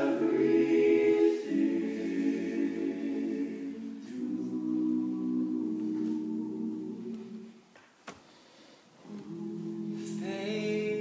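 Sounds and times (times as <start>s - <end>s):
male a cappella harmony singing: 0.0s - 7.6s, 9.0s - 11.0s.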